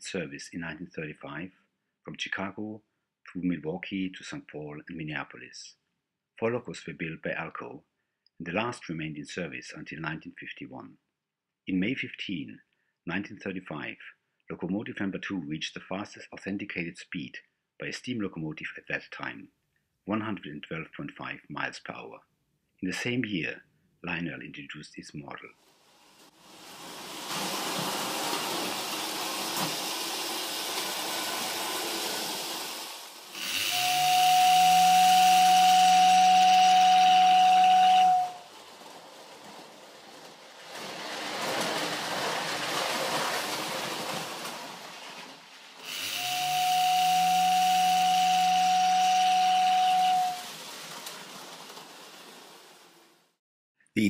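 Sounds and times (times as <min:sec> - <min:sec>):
toy train rattling on track: 0:26.1 - 0:34.9, 0:38.0 - 0:48.0, 0:50.0 - 0:53.1
toy train whistle: 0:29.2 - 0:39.2, 0:45.8 - 0:51.2.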